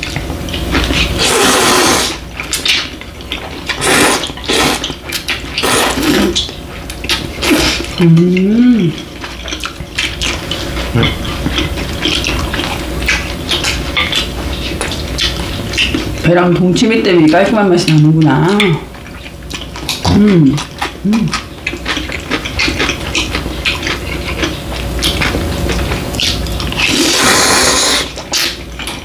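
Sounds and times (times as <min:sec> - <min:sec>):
chewing: 0:00.0 - 0:29.0
noodles slurped loudly: 0:01.2 - 0:02.8, 0:03.7 - 0:05.0, 0:05.6 - 0:06.5, 0:07.4 - 0:08.0, 0:25.1 - 0:28.6
person humming: 0:20.1 - 0:21.4.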